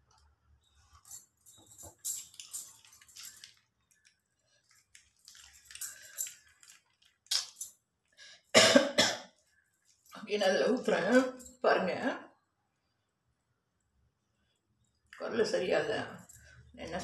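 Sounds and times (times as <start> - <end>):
plastic and paper crinkling: 0.8 - 7.6
person coughing: 8.6 - 9.3.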